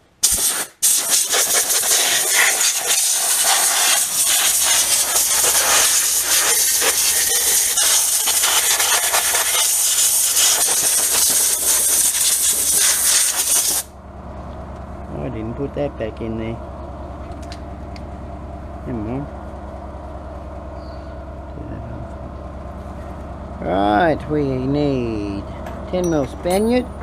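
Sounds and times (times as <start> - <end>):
compressed air hissing: 0.2 - 13.9
low steady hum: 13.9 - 27.0.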